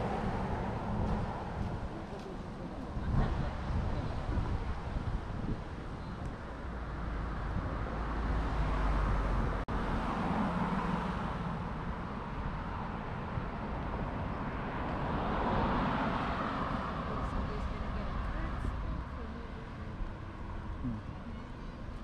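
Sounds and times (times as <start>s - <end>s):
wind buffeting microphone: 0.0s - 10.7s
cars passing: 0.0s - 22.0s.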